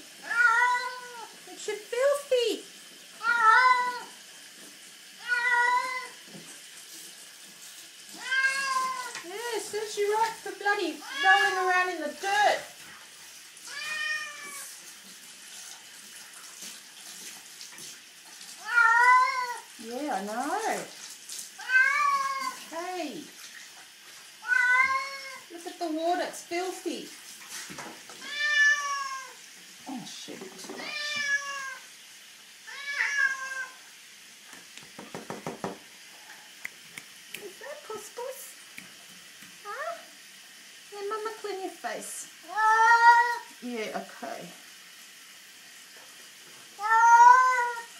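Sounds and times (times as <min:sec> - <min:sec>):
faint water sounds: 0:00.0 - 0:47.9
cat meowing: 0:00.2 - 0:01.3, 0:03.2 - 0:04.1, 0:05.2 - 0:06.2, 0:08.1 - 0:09.2, 0:13.7 - 0:14.7, 0:18.6 - 0:19.6, 0:21.6 - 0:22.6, 0:24.4 - 0:25.5, 0:28.2 - 0:29.4, 0:30.8 - 0:31.9, 0:32.7 - 0:33.8, 0:46.8 - 0:47.9.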